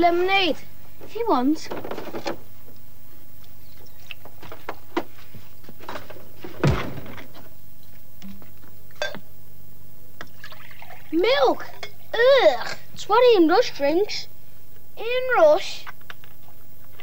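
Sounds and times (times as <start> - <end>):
fridge hum: 0.0 - 14.2
tape hiss: 0.0 - 17.0
loud thud: 5.9 - 7.5.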